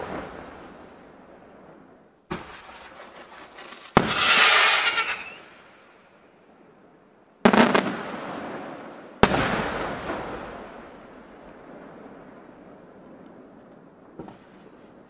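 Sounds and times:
firework shells bursting: 2.3 - 5.5.

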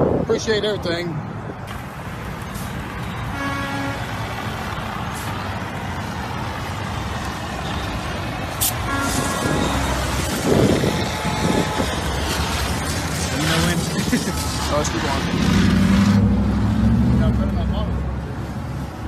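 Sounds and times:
highway traffic: 0.0 - 19.0
fire extinguisher hissing: 8.5 - 10.8.

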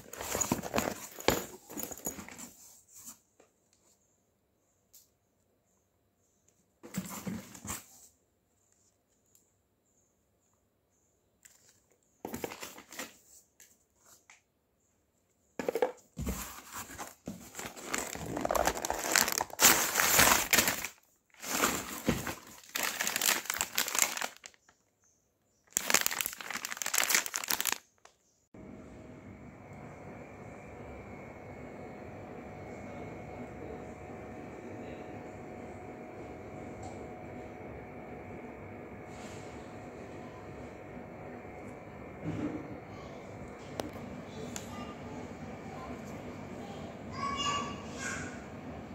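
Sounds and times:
plastic packaging crinkling: 16.9 - 24.8, 25.7 - 28.2.

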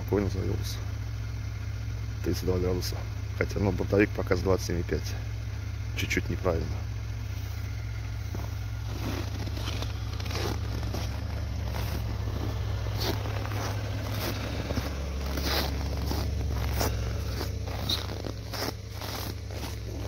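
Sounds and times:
car engine idling: 0.0 - 20.0
footsteps crunching in frozen snow: 7.3 - 20.0.

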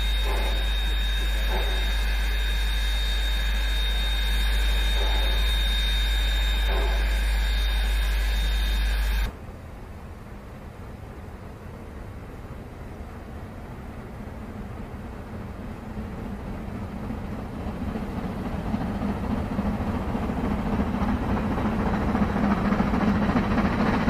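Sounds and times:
electrical hum: 0.0 - 9.4
high-pitched whine: 0.0 - 9.4.

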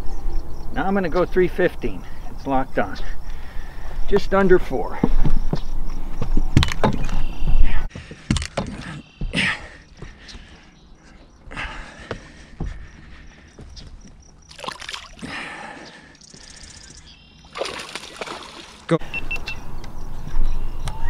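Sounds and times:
fish splashing into water: 14.5 - 15.4, 17.4 - 18.9.

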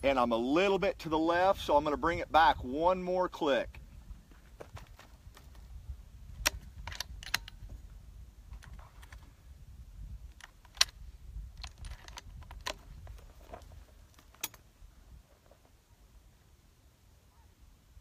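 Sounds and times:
faint outdoor rumble: 0.0 - 18.0
rifle bolt clicks and knocks: 6.4 - 7.8, 8.5 - 9.3, 10.2 - 14.6.

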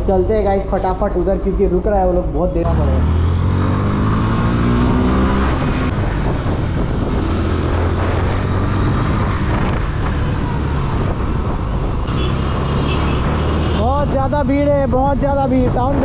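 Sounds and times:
wind rush and road noise: 0.0 - 16.0
motorcycle engine: 2.6 - 14.7.

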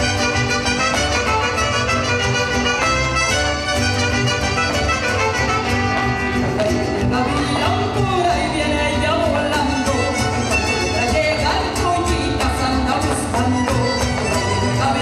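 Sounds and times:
mariachi music with violins: 0.0 - 15.0
person singing: 6.4 - 15.0.

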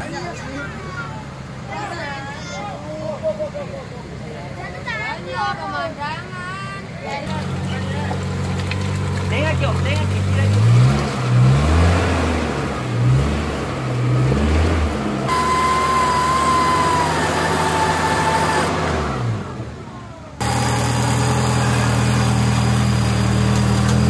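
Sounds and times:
engine revving: 7.3 - 24.0.

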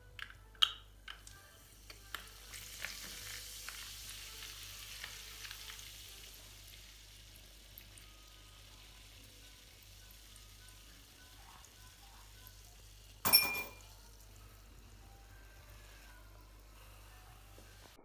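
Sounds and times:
soda fizzing: 2.1 - 11.4.

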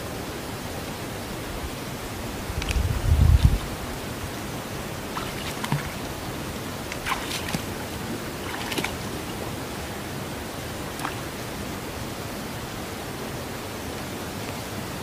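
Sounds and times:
steady background hiss: 0.0 - 15.0
water sloshing around legs: 4.9 - 10.1, 10.8 - 11.3.

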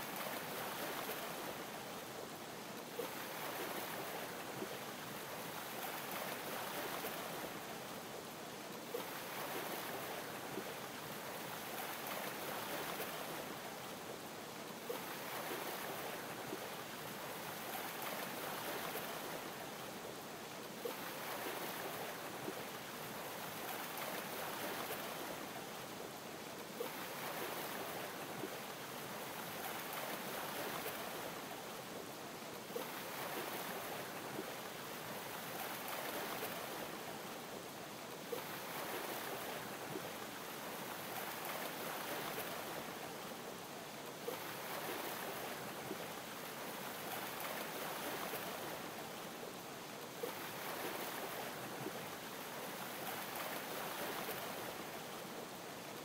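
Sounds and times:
ocean waves lapping: 3.0 - 4.4, 20.8 - 25.8, 26.7 - 31.5, 32.7 - 37.1, 38.3 - 43.4, 44.2 - 49.0, 50.2 - 55.5.

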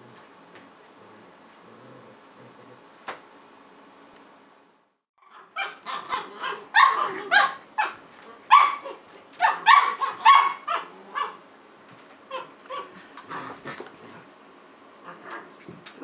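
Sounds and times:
puppies play-barking: 5.2 - 11.5, 12.3 - 14.3.

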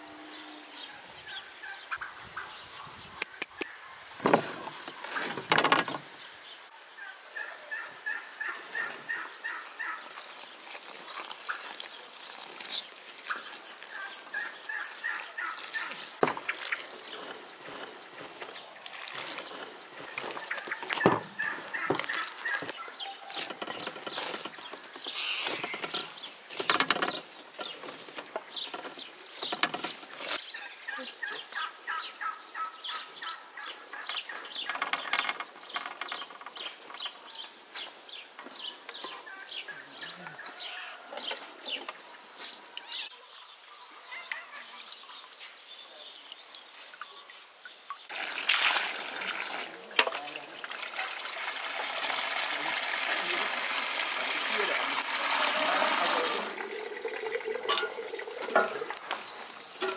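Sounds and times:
chickens clucking: 6.9 - 37.4, 38.4 - 45.3, 52.6 - 59.9
water gushing into bucket: 18.8 - 21.0, 48.1 - 59.9.

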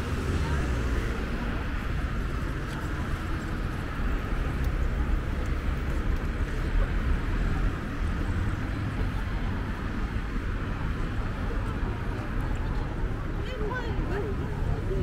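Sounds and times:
street noise: 0.0 - 15.0
traffic rumble: 0.0 - 15.0.

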